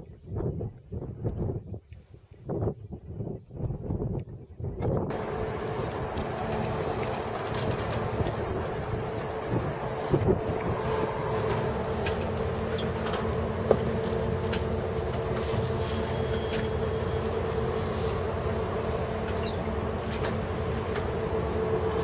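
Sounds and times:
engine humming: 0:05.0 - 0:22.0.

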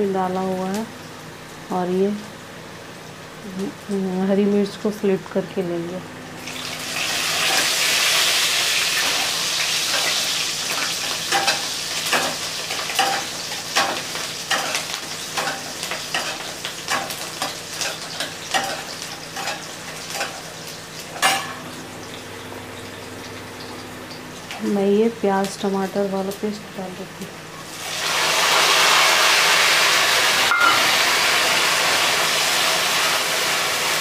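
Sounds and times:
food sizzling in hot oil: 0:06.3 - 0:26.5, 0:27.6 - 0:34.0
sharp knock on pan: 0:30.5 - 0:30.9.

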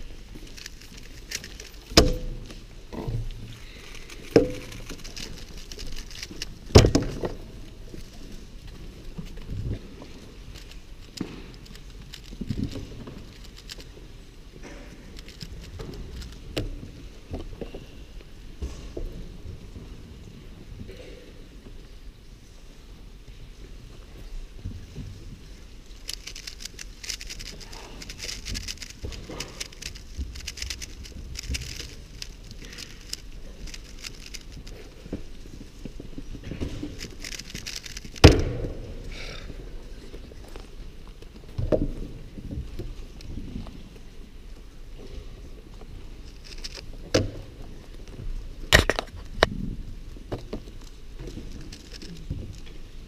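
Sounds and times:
low hum of a large hall: 0:00.0 - 0:53.0
speedcube turning clicks: 0:26.0 - 0:34.8, 0:36.9 - 0:38.4.

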